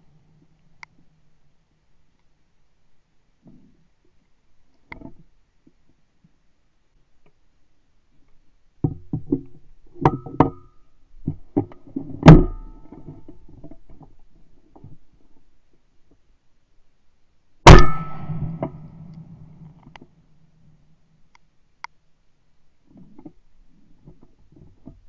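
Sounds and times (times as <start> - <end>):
loud shotgun shot with echo: 17.7 - 19.0.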